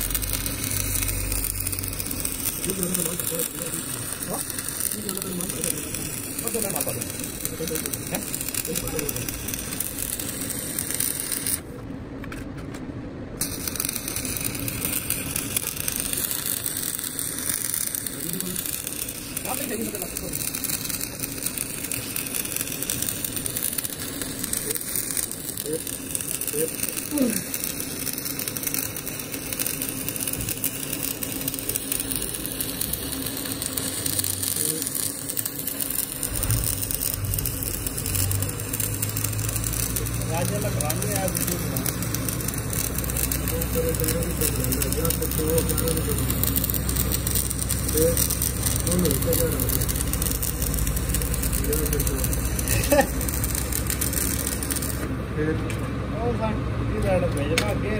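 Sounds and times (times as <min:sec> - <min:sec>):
welding arc crackling: 0:00.0 - 0:12.6, 0:13.3 - 0:57.9
low hum: 0:00.0 - 0:19.5.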